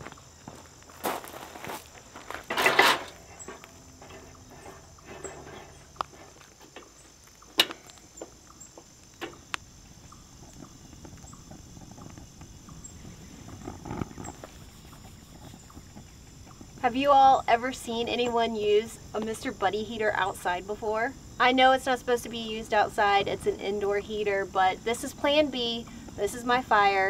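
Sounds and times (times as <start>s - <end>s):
heater set down on gravel: 0.0s - 9.5s.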